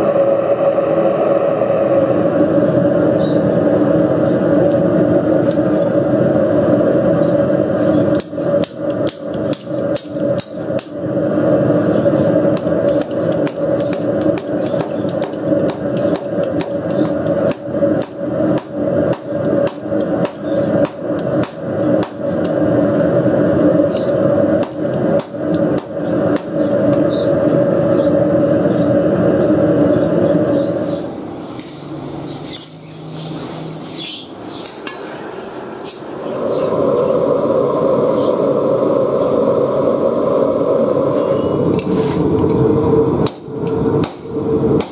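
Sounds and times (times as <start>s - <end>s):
continuous low hum: 0.0s - 44.9s
arc welding crackle: 7.2s - 29.6s, 31.5s - 34.0s
hammer striking metal on anvil: 8.1s - 11.0s, 12.6s - 22.6s, 23.9s - 27.0s, 41.2s - 41.6s.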